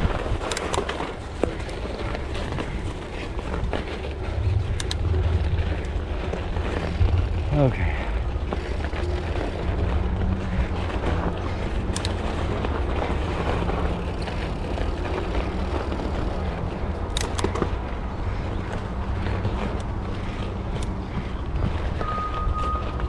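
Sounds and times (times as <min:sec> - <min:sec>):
bike tyres rumbling on trail: 0:00.0 - 0:23.0
sharp clicks: 0:04.7 - 0:05.0, 0:17.1 - 0:17.7.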